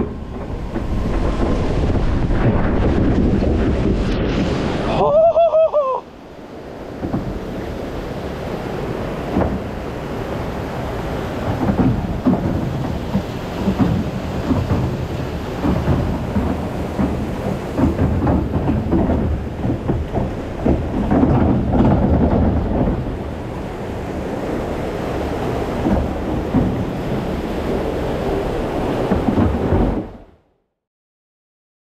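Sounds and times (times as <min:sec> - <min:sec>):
heavy low rumble: 0:00.0 - 0:05.3
water rushing and splashing: 0:00.0 - 0:30.4
person crying out: 0:04.9 - 0:06.1.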